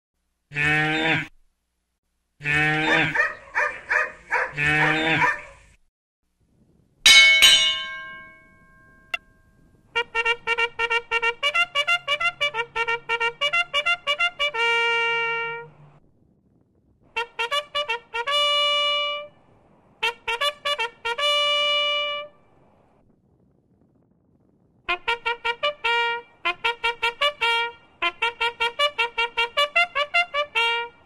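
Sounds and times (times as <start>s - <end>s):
cow mooing: 0.5s - 1.3s, 2.4s - 3.4s, 4.3s - 5.4s.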